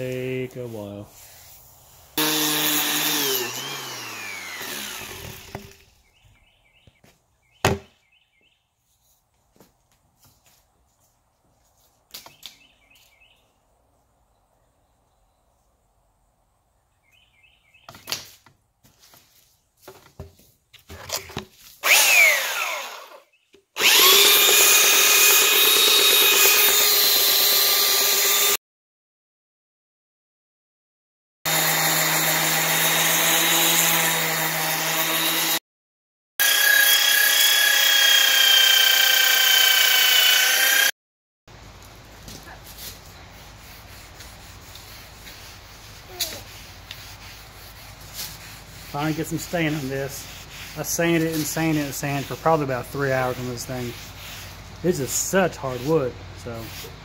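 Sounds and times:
belt sander whining: 2.2 - 5.8, 21.8 - 28.6, 36.4 - 40.9
orbital sander on wood: 2.2 - 5.8, 21.8 - 28.6, 31.5 - 35.6, 36.4 - 41.0, 43.3 - 57.0.

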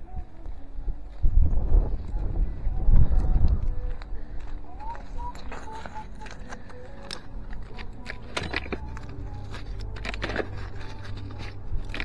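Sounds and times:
metal scrap clinking and scraping: 6.2 - 12.0.

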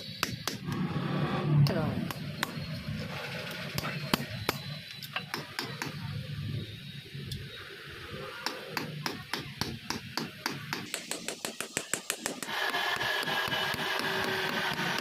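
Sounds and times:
small hammer tapping metal: 8.8 - 15.0.

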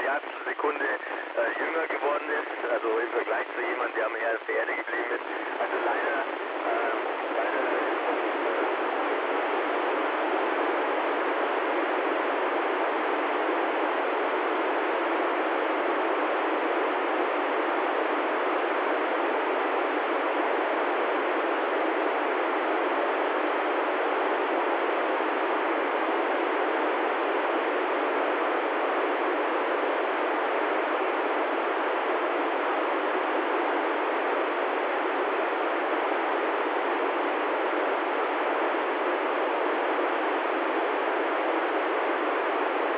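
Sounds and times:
radio receiver hiss: 0.0 - 14.9.

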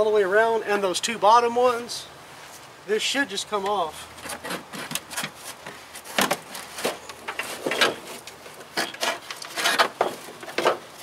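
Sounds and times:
knocks and scrapes against sheet metal: 4.2 - 10.9.

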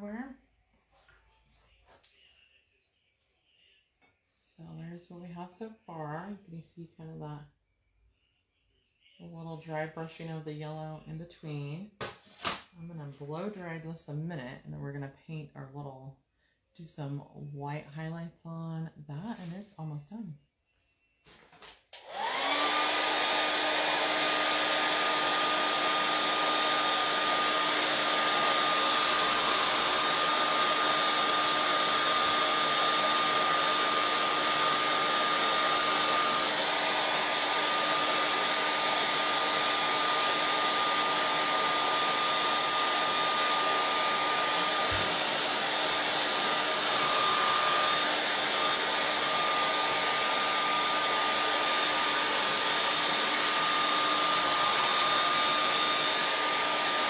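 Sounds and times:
hair dryer running: 21.9 - 57.0.

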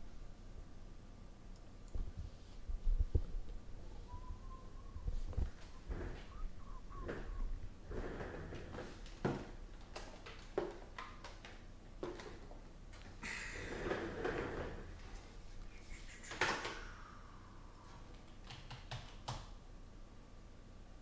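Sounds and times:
clicks and knocks of objects: 8.6 - 13.1.

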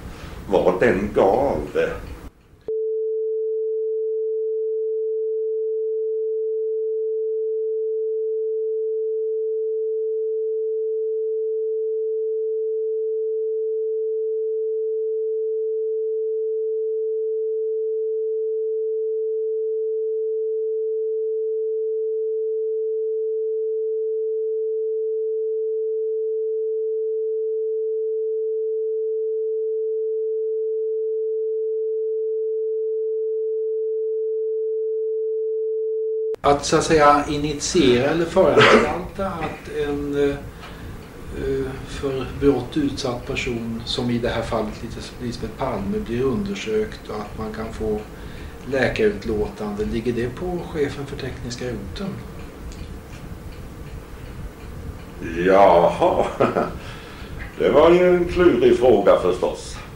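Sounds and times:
steady censor tone: 2.6 - 36.5.

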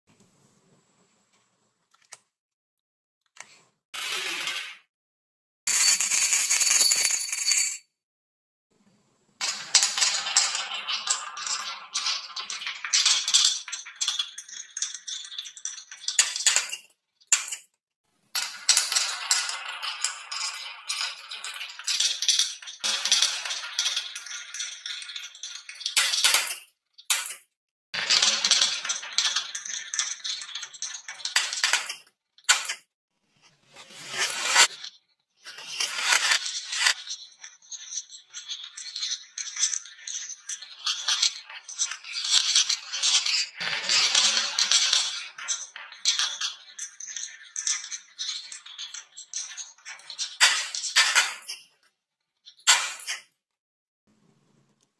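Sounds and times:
marbles rolling on wooden tracks: 9.4 - 17.6, 18.3 - 26.5, 28.0 - 32.7, 33.8 - 51.5.

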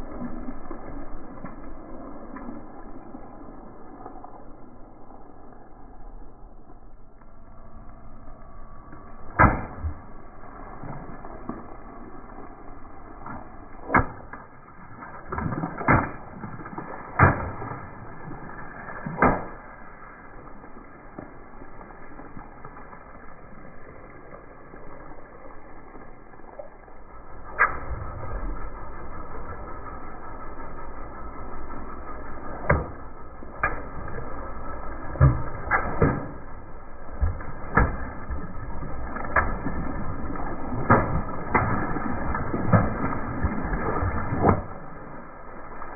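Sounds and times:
steady low rumble: 0.0 - 45.9
water balloons popping: 9.3 - 10.2, 13.2 - 17.9, 19.0 - 19.8, 32.5 - 44.8.

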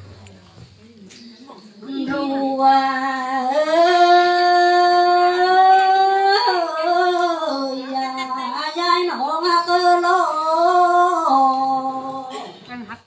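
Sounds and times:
person singing long notes: 1.9 - 12.3.

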